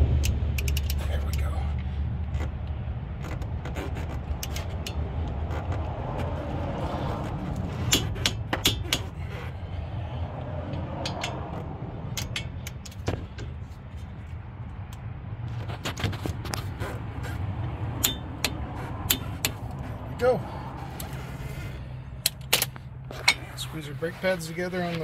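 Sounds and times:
steady low rumble: 0.0s - 25.0s
torque wrench ratcheting: 0.2s - 1.4s.

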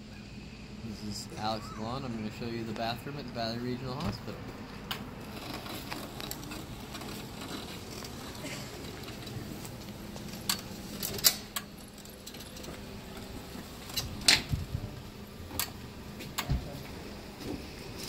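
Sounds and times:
power wheelchair rolling: 0.9s - 18.0s.

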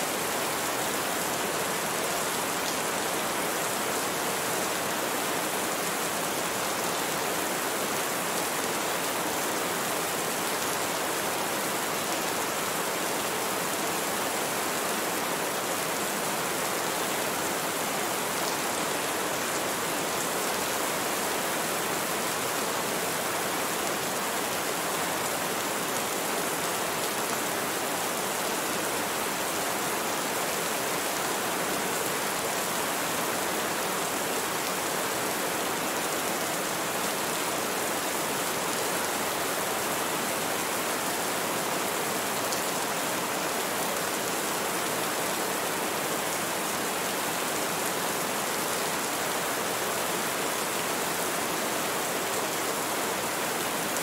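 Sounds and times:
rain falling: 0.0s - 54.0s.

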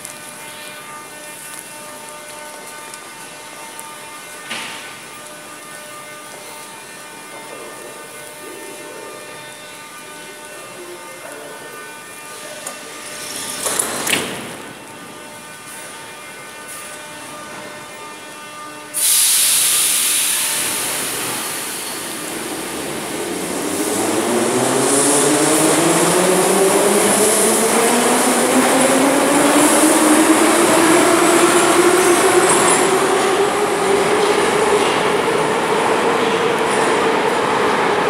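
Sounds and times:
train humming: 0.0s - 38.0s
compressed air hiss: 19.0s - 22.1s
traction motors whining: 20.5s - 35.7s.

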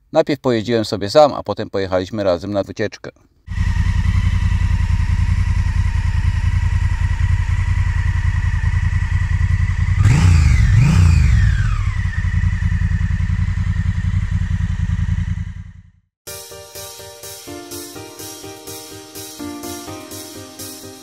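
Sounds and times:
motorcycle engine idling and revving: 3.5s - 16.1s.

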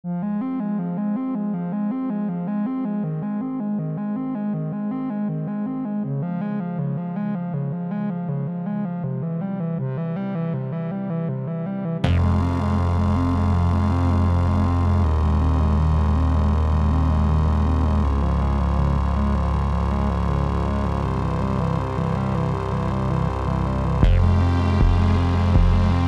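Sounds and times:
electronic synthesizer music: 0.1s - 26.0s
bass line: 11.9s - 26.0s.

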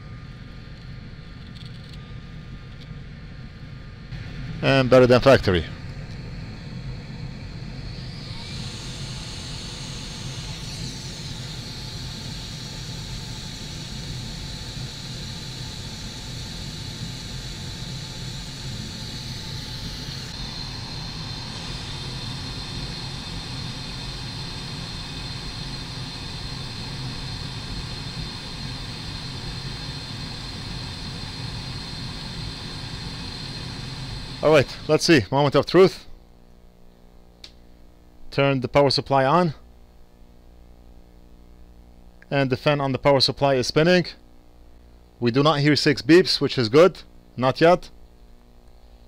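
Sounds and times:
hot air station whirring: 0.0s - 36.2s
thin high whine: 0.0s - 49.0s.

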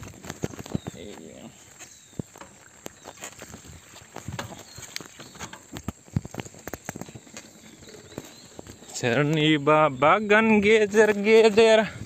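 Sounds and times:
bike clicks and rattles: 0.0s - 1.0s, 2.2s - 9.5s
mountain bike riding on dirt track: 0.0s - 12.0s.

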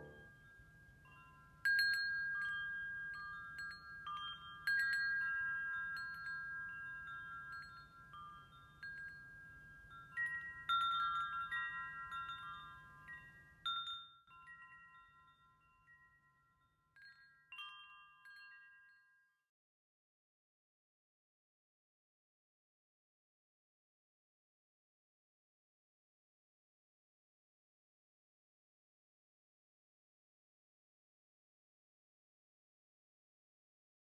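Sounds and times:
wind chimes ringing: 0.0s - 19.5s.

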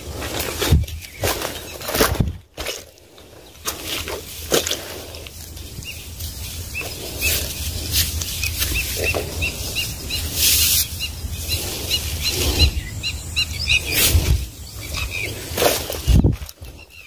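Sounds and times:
handling knocks and rustling: 0.0s - 9.8s, 14.0s - 16.9s
low wind rumble: 0.0s - 17.0s
bird chirping: 0.9s - 2.0s, 3.1s - 17.0s.

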